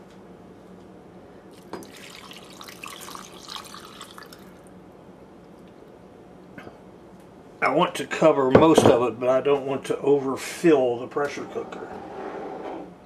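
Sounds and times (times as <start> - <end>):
water splashing and trickling: 1.8 - 4.6.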